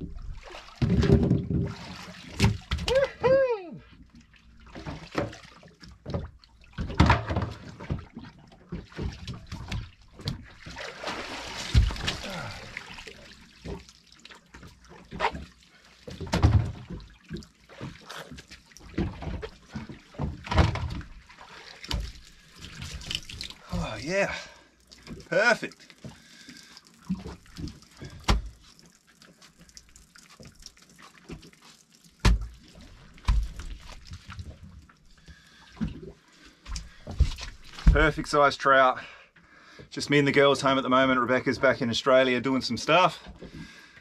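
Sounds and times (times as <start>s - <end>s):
water splashing and sloshing: 0.0s - 44.0s
dull thumps against hull: 11.6s - 12.2s, 16.1s - 17.1s, 18.9s - 21.2s, 28.0s - 28.6s, 32.2s - 32.6s, 33.2s - 34.6s, 36.7s - 38.2s
water dripping: 21.0s - 38.2s.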